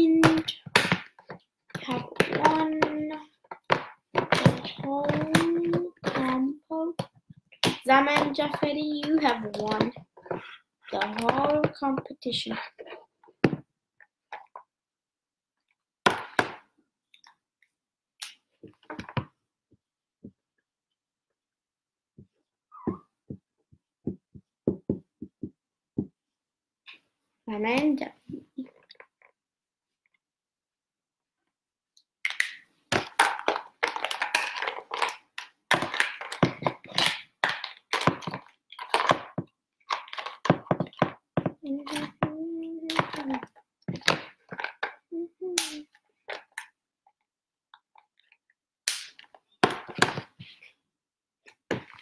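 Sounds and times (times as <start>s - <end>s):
plastic marker pens clattering: 32.3s - 45.0s.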